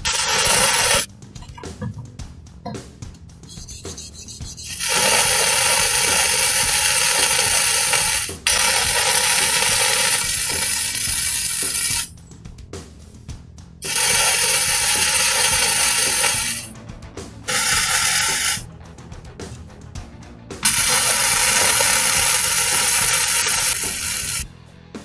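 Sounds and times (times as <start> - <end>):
welding arc crackling: 0.0 - 1.1, 4.6 - 12.1, 13.8 - 16.7, 17.5 - 18.6, 20.6 - 24.5.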